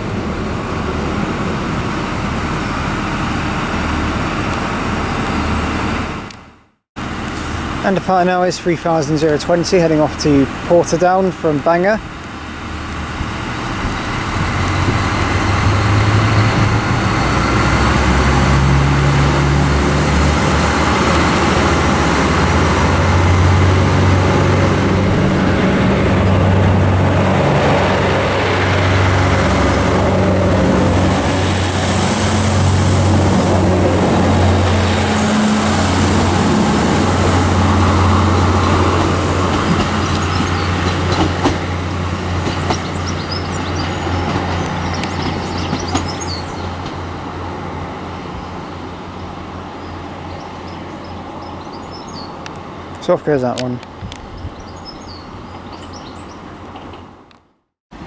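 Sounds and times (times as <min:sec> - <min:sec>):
diesel train engines running hard: 0:00.0 - 0:57.3.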